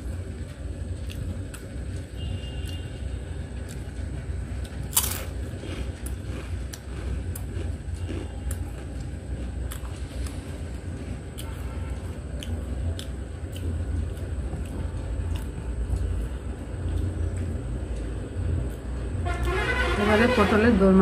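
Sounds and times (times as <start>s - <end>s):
steady low rumble: 0.0s - 21.0s
chips crunching while chewed: 4.6s - 16.1s.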